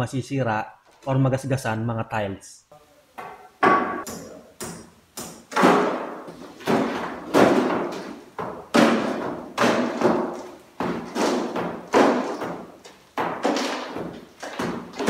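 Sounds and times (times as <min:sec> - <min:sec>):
hammer striking concrete: 0:08.7 - 0:14.8.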